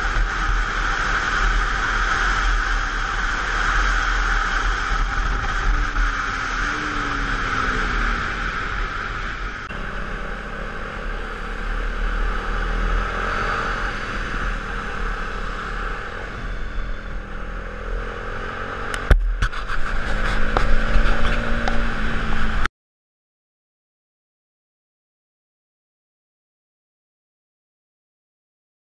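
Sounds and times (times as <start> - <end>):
clatter: 0.0 - 7.4, 18.9 - 21.9
wind rush over microphone: 0.0 - 9.8, 18.9 - 22.7
motorcycle engine running: 0.0 - 22.7.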